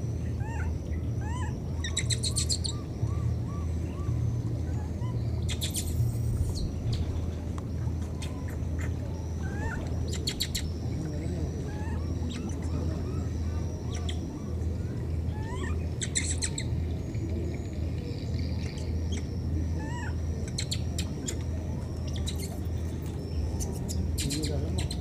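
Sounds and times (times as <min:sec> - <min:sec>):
steady low hum: 0:00.0 - 0:25.0
baby monkey squeaking: 0:00.4 - 0:02.8, 0:05.5 - 0:06.7, 0:09.4 - 0:10.7, 0:15.4 - 0:16.7, 0:19.1 - 0:21.4, 0:22.1 - 0:22.6.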